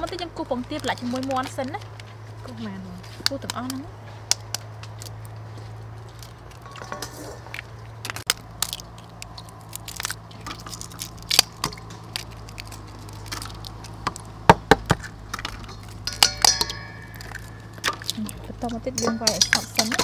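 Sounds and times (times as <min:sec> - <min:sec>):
eggs tapped and cracked on a bowl: 0:13.2 - 0:20.0.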